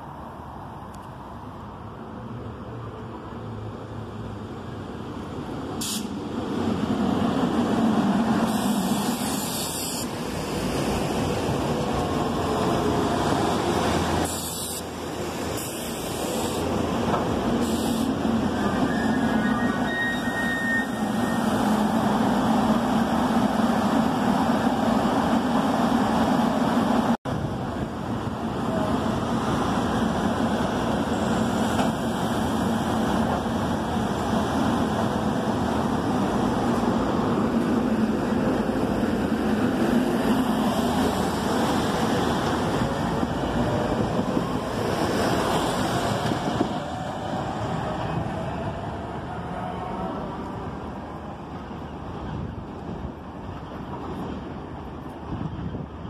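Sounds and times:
train rumble and hum: 0:00.0 - 0:56.0
faint high squeal: 0:18.6 - 0:21.6.

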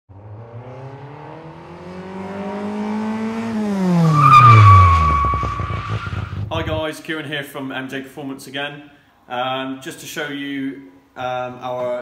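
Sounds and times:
car engine accelerating past: 0:00.1 - 0:06.8
high squeal: 0:04.1 - 0:06.8.

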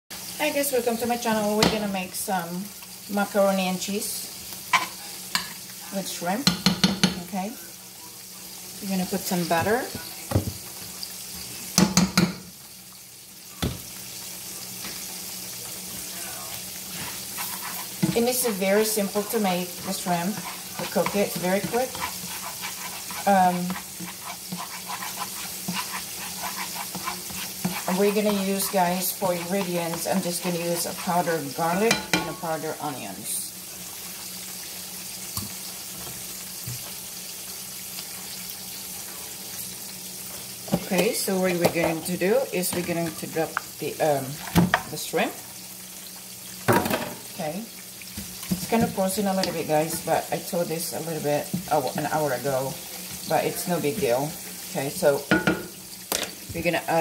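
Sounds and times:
butter sizzling faintly: 0:00.1 - 0:57.0
metal spoon knocking frying pan: 0:06.4 - 0:07.3, 0:11.8 - 0:12.4, 0:31.9 - 0:32.4, 0:55.3 - 0:56.3.

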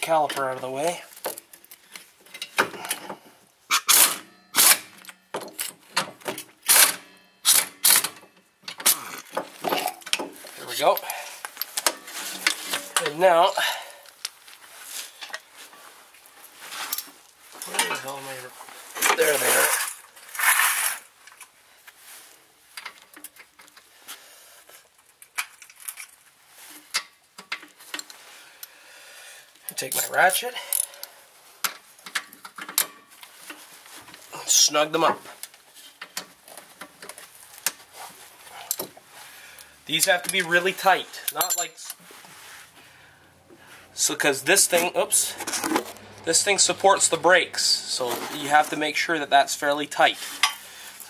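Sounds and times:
metal tools clicking and clinking: 0:17.0 - 0:18.1, 0:29.7 - 0:31.1, 0:41.1 - 0:42.0.

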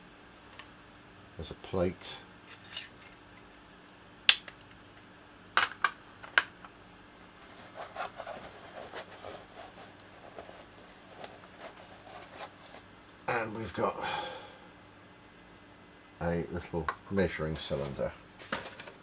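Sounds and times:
handling and rustling: 0:07.4 - 0:12.9, 0:17.7 - 0:19.0.

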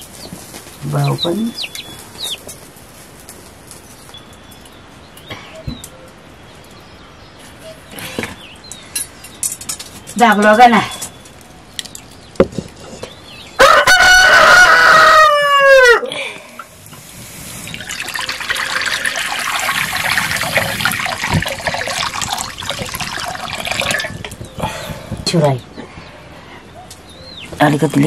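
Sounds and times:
rooster crowing: 0:13.6 - 0:16.1
water pouring into a wok: 0:17.7 - 0:24.3.

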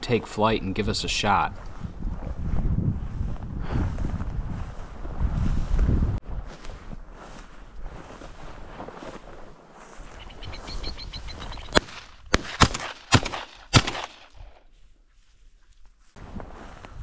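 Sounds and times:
footsteps through tall grass: 0:01.5 - 0:12.2, 0:14.4 - 0:17.0
birds flushing wing ticking: 0:10.1 - 0:12.1
shotgun shots: 0:11.7 - 0:14.6.

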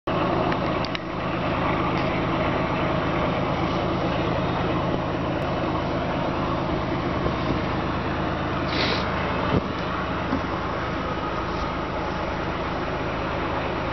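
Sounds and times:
constant noise: 0:00.1 - 0:13.9
low engine drone: 0:00.1 - 0:13.9.

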